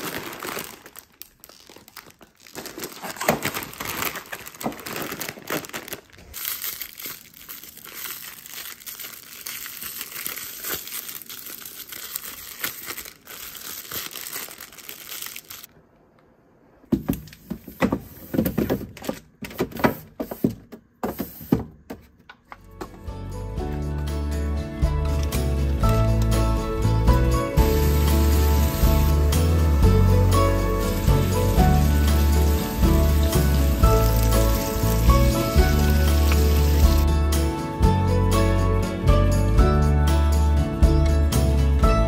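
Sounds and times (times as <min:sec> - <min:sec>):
packet being crumpled: 0:00.0 - 0:15.7, 0:27.6 - 0:37.1
plastic wrappers crinkling: 0:00.0 - 0:15.7, 0:27.7 - 0:37.0.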